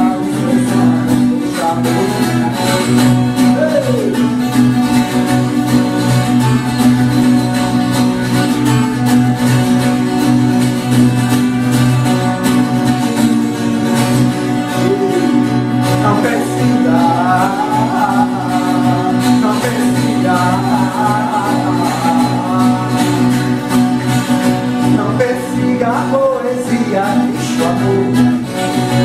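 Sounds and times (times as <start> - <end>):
wavering melody line: 14.4 - 23.3.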